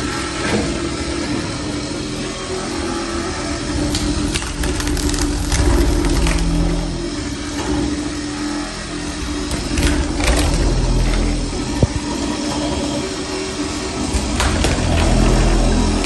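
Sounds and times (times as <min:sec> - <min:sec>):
floor stripper motor hum: 0:00.0 - 0:16.0
wood cracking and splintering: 0:03.8 - 0:06.7.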